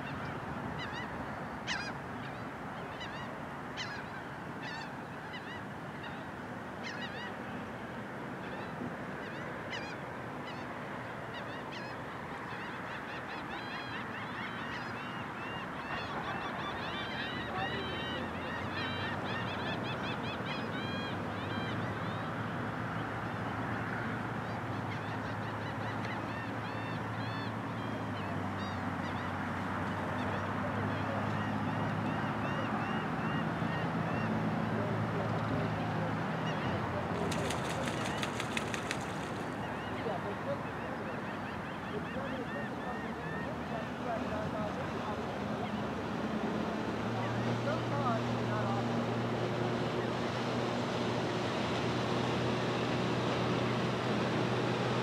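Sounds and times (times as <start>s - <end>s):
birds calling: 0.8s - 7.4s, 23.8s - 44.8s.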